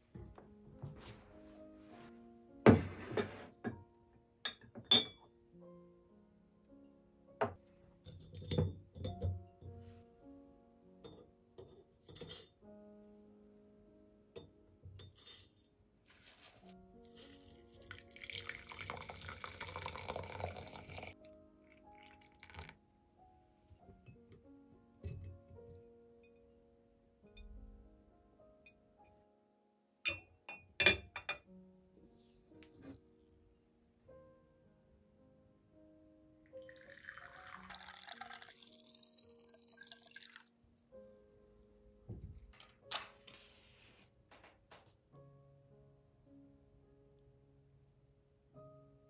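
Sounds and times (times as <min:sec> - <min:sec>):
soft background music: 0:00.0 - 0:49.0
water pouring into teapot: 0:17.2 - 0:21.2, 0:21.9 - 0:22.8, 0:36.6 - 0:40.6
soft thump: 0:42.1 - 0:42.5.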